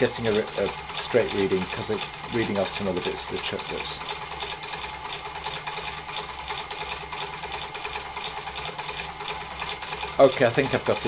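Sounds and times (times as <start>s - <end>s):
lathe clattering: 0.0s - 11.0s.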